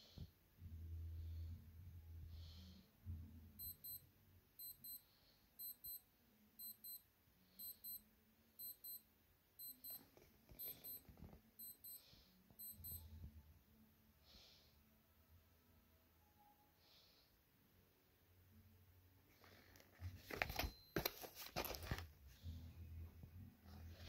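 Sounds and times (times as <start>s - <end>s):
electronic alarm beeping: 3.6s - 5.0s, 5.6s - 6.0s, 6.6s - 7.0s, 7.6s - 8.0s, 8.6s - 9.0s, 9.6s - 13.1s
cardboard box rustling: 20.1s - 22.1s.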